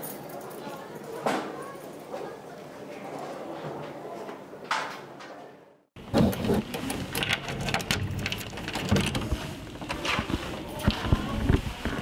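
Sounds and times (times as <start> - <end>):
keys jingling in a door lock: 6.7 - 9.4.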